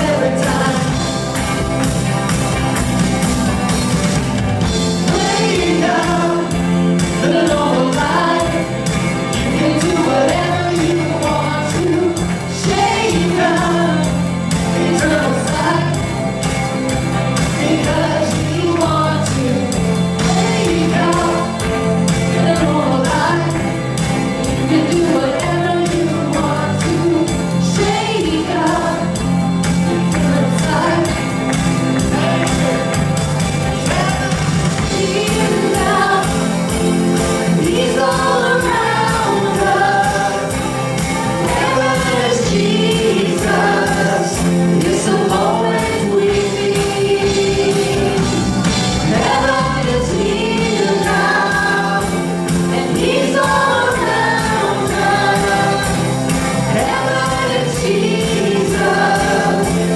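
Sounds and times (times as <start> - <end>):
band with electric guitar: 0.0 - 59.9
women singing together: 5.1 - 16.0, 17.5 - 23.7, 24.6 - 29.2, 29.8 - 31.3, 34.9 - 48.4, 49.0 - 59.9.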